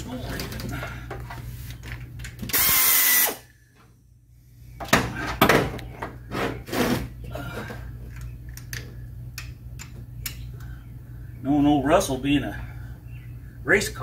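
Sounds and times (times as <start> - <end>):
power tool burst: 2.5 - 3.4.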